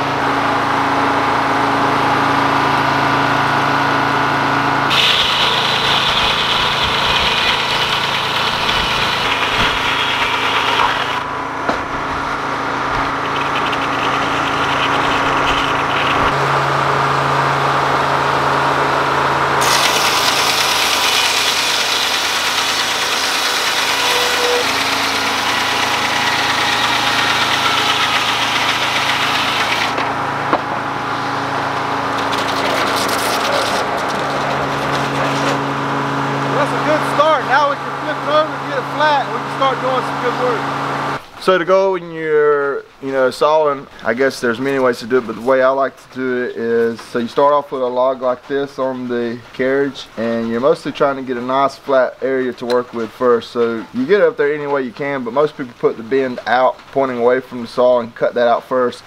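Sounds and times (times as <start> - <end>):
diesel engine running: 0.0 - 41.4
circular saw blade cutting log: 4.9 - 17.2, 19.5 - 41.2.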